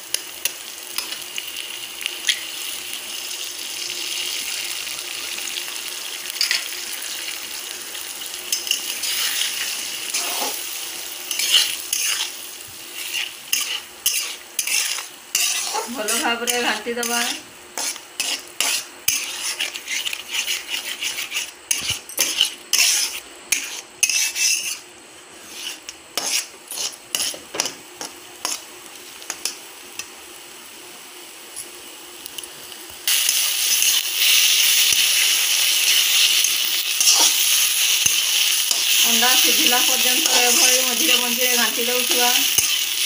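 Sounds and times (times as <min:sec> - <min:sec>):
loud frying sizzle: 0:00.0 - 0:43.0
spatula scraping pan: 0:08.5 - 0:28.6, 0:33.1 - 0:43.0.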